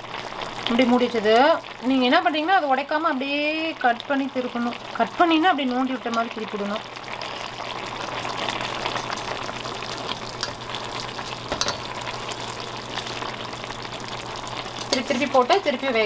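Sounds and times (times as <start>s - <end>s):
gravy bubbling in a pan: 0.0s - 16.0s
metal spoon clicking against pan: 11.5s - 11.8s.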